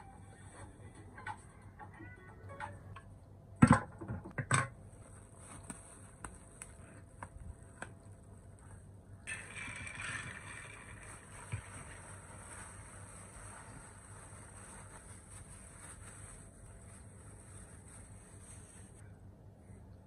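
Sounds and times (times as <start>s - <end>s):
plastic bag rustling: 9.3s - 19.0s.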